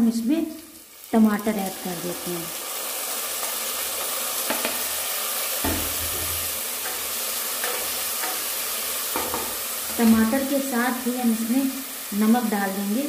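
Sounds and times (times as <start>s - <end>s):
tomatoes sizzling in hot oil: 0.0s - 13.0s
spatula knocking against pot: 5.6s - 7.0s, 9.2s - 9.6s.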